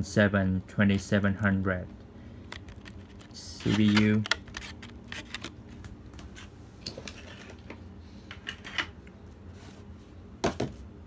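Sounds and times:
plastic packaging clicks and crackles: 0:02.5 - 0:05.6.

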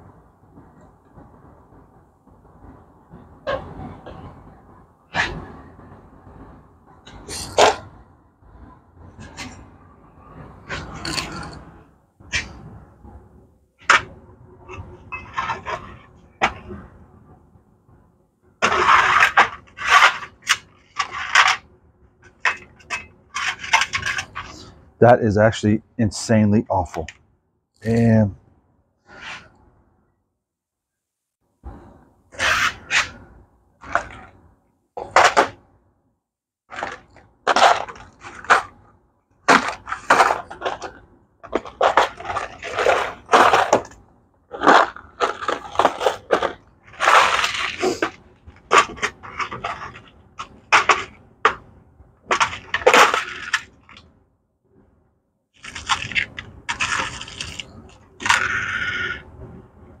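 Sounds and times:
clatter and scraping of tools: 0:10.3 - 0:12.8, 0:13.8 - 0:16.9, 0:18.6 - 0:24.9, 0:39.5 - 0:51.7, 0:52.3 - 0:54.1.

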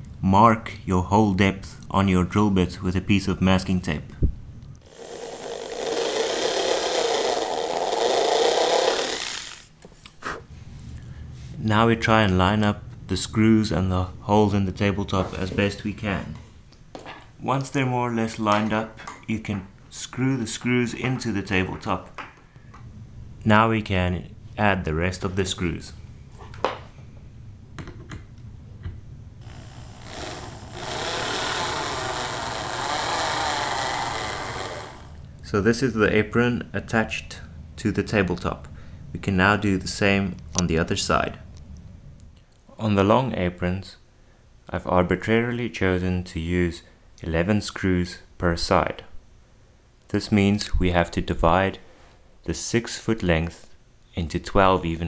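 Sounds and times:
electric drill boring into wood: 0:04.8 - 0:09.7, 0:29.4 - 0:35.2.

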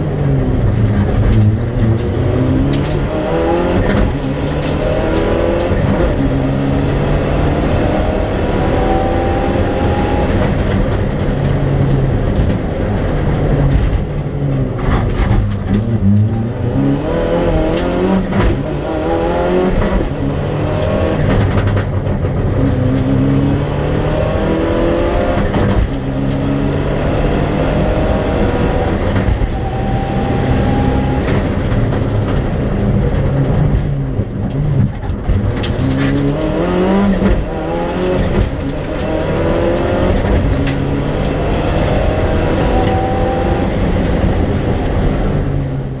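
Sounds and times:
car engine at full throttle: 0:00.0 - 0:46.0
sharp clicks and knocks: 0:09.7 - 0:16.5, 0:17.3 - 0:27.0, 0:31.0 - 0:45.4.

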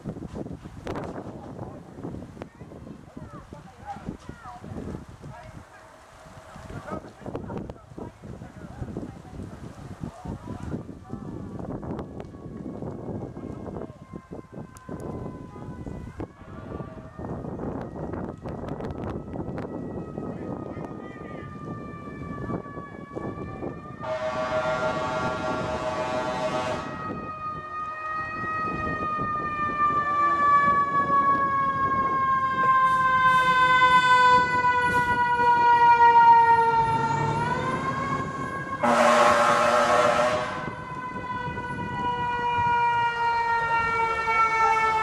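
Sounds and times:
fire engine siren wailing: 0:03.6 - 0:07.7, 0:10.6 - 0:45.0
horn blasts: 0:24.0 - 0:27.0, 0:38.8 - 0:40.8.

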